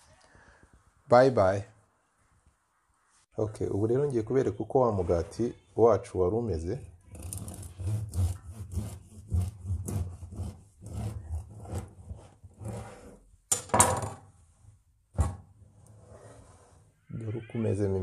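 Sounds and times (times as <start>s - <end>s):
knife sawing through bread crust: 7.2s - 13.1s.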